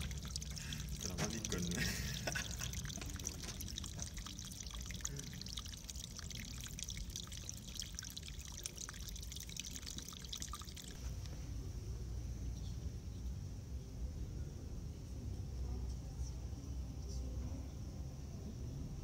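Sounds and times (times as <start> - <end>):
water trickling and dripping: 0.0 - 11.4
low steady rumble: 0.0 - 19.0.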